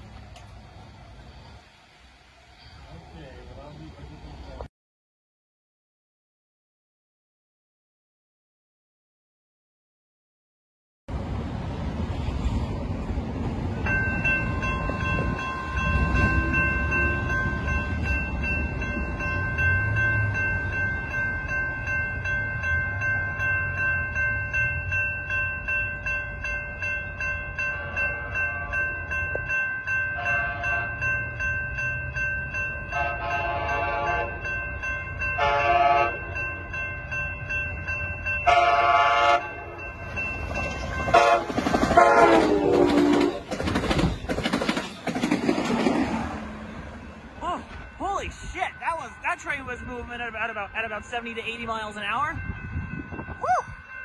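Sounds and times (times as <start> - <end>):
rush of passing train cars: 0.0 - 4.7, 11.1 - 54.0
crossing bell ringing: 13.6 - 43.5, 46.4 - 54.0
train horn blasts: 27.7 - 28.9, 30.2 - 31.1, 32.9 - 34.5, 35.4 - 36.4, 38.4 - 39.8, 41.0 - 43.5.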